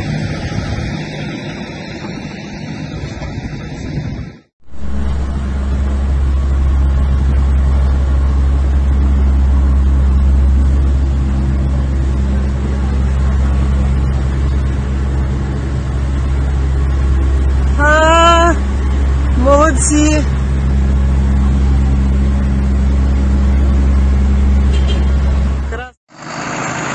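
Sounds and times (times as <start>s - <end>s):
tractor diesel engine droning: 0.0s - 26.9s
person calling out: 17.8s - 18.6s, 19.4s - 20.3s.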